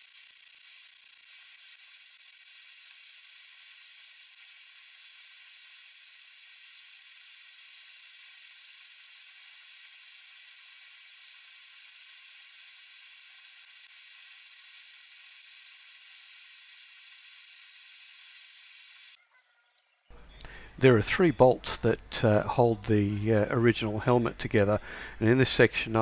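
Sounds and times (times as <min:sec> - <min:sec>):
steady hiss: 0:00.0 - 0:19.2, 0:20.1 - 0:26.0.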